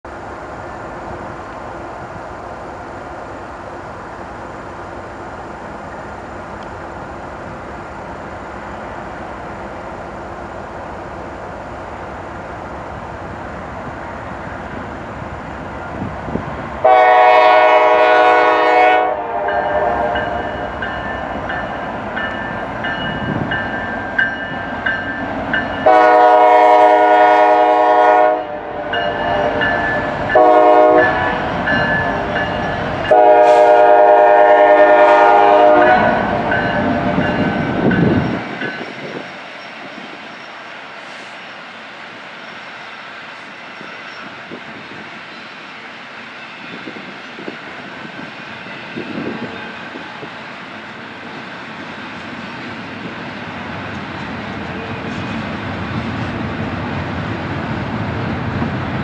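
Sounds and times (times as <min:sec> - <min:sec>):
diesel locomotive engines running: 0:00.0 - 0:59.0
train rolling past: 0:00.0 - 0:59.0
locomotive air horn blasts: 0:16.8 - 0:20.5, 0:25.8 - 0:29.7, 0:30.3 - 0:31.4, 0:33.1 - 0:36.6.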